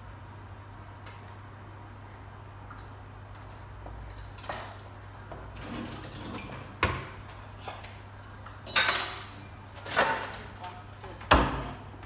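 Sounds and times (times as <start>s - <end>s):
faint steady hum: 0.0s - 12.0s
dishes and utensils clinking: 7.3s - 10.3s
metal and glass clatter: 7.3s - 10.3s.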